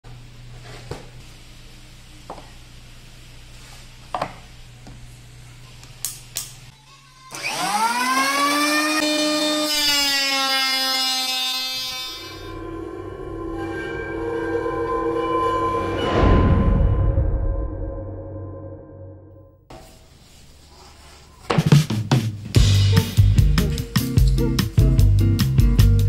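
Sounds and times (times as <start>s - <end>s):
electric planer motor whine: 7.3s - 12.8s.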